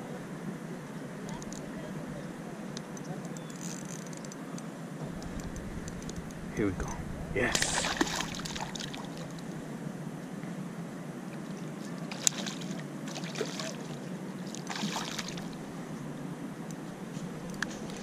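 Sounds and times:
steady low water rush: 0.0 - 3.3, 4.3 - 18.0
fish splashing and thrashing: 7.6 - 9.6, 12.1 - 13.9, 14.5 - 15.8.

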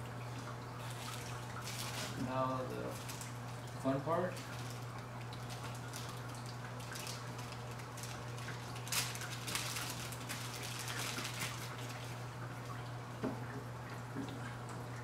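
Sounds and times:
plastic bag crinkling: 0.8 - 12.2.

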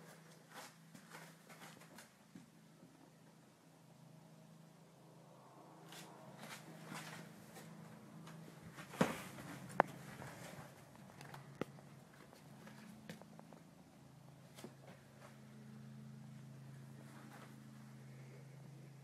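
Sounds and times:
faint footsteps: 0.0 - 3.0, 5.9 - 15.5
low steady hum: 0.0 - 19.0.

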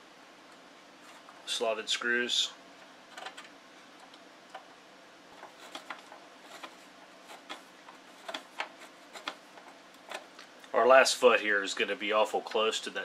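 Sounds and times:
screwdriver clicks and scrapes: 5.4 - 7.6, 8.2 - 10.3.

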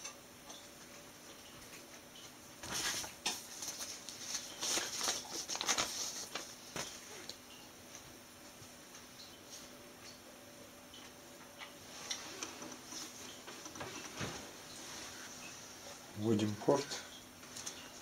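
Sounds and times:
rustling handling noise: 2.6 - 7.3, 11.7 - 18.0.

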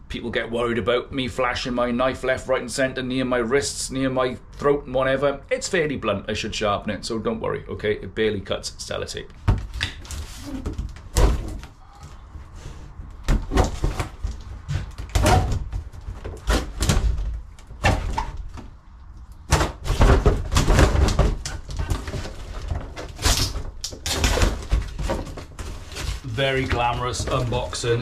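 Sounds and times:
box scraping and thumping: 12.5 - 18.5, 19.5 - 28.0.

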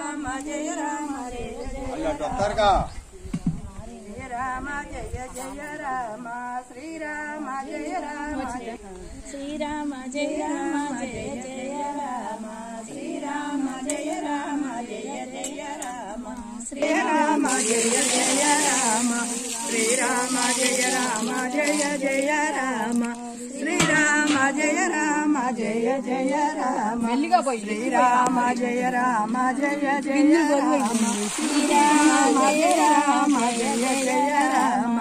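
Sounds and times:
group singing a chant: 0.0 - 2.4, 3.8 - 35.0.

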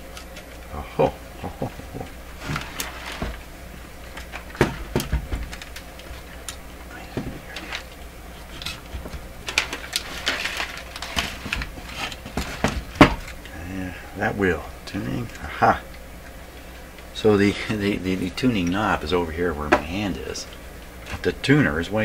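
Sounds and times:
low steady hum: 0.0 - 22.0
hands handling a radio: 1.6 - 13.5.

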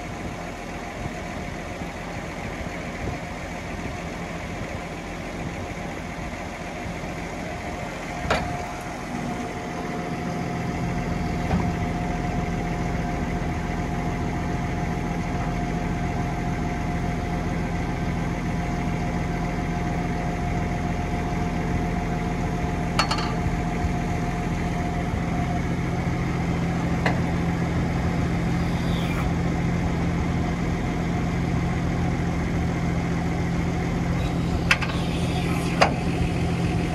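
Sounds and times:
tractor engine idling: 0.0 - 36.9
hydraulic fold lifting: 34.2 - 36.9.

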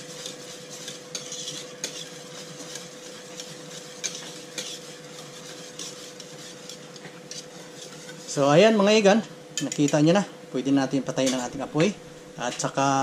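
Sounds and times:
whisk scraping pot: 0.0 - 10.1.

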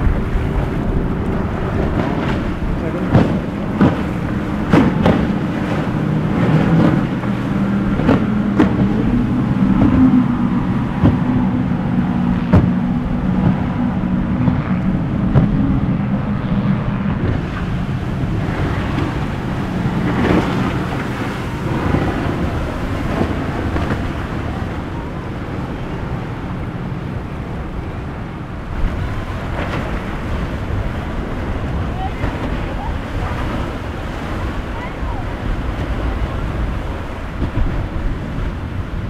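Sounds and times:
boat engine droning: 0.0 - 39.0
waves washing: 0.0 - 39.0
wind buffeting microphone: 0.0 - 39.0.

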